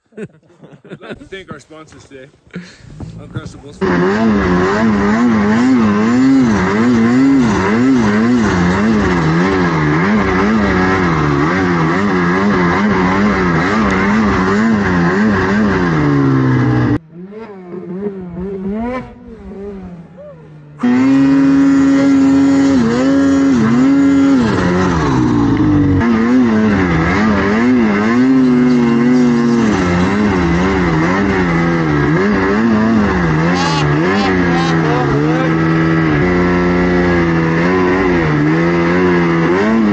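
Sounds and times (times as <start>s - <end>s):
snowmobile engine revving: 0.8s - 39.9s.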